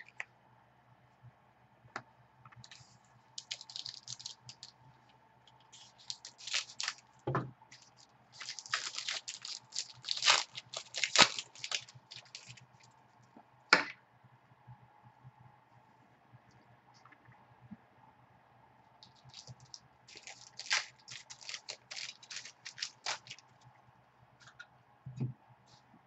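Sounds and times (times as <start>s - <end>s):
plastic wrappers crinkling: 2.6s - 4.8s, 5.6s - 7.0s, 7.8s - 12.9s, 19.0s - 23.5s.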